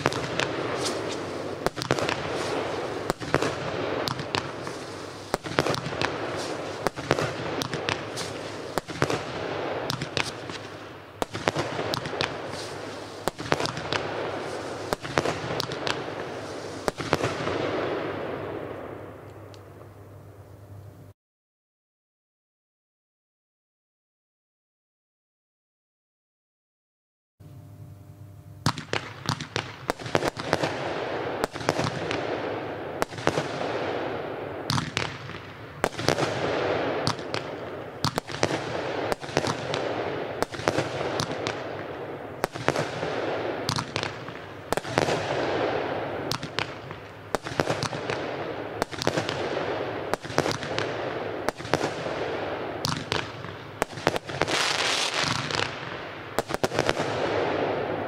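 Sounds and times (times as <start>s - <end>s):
firework stars bursting: 0.0s - 19.6s, 28.6s - 58.0s
firework shots: 0.0s - 19.7s, 28.6s - 58.0s.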